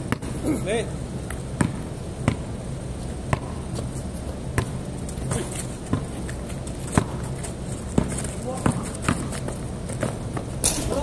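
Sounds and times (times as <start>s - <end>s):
basketball bouncing on concrete: 0.0s - 0.3s, 1.6s - 2.5s, 3.2s - 3.9s, 4.5s - 10.7s.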